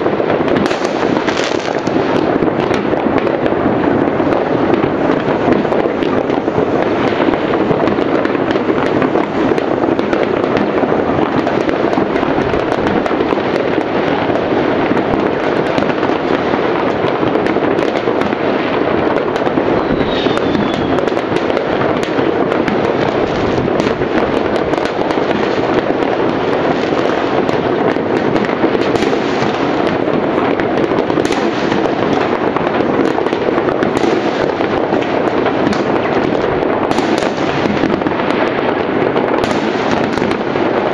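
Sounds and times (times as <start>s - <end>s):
distant fireworks crackling: 0.0s - 40.9s
firework falling whistle: 19.2s - 22.8s.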